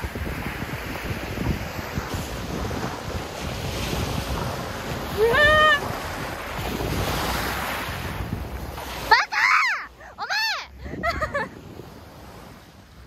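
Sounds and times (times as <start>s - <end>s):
wind buffeting microphone: 0.0s - 13.0s
woman giving short high cry: 5.2s - 5.8s, 9.1s - 10.7s.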